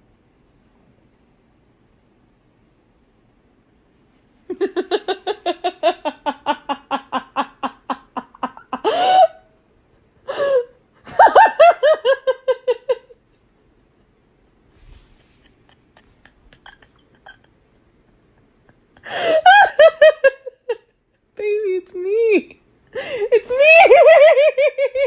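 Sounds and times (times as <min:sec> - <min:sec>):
woman laughing hard: 0:04.5 - 0:09.5, 0:10.2 - 0:13.4, 0:15.3 - 0:21.0, 0:23.0 - 0:25.0.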